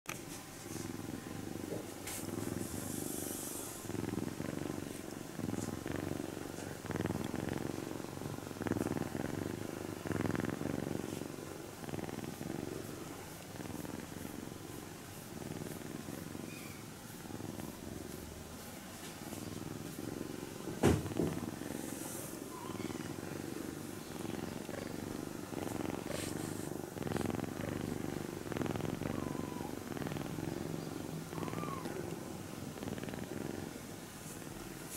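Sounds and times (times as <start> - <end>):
kitten purring: 0.1 - 34.9.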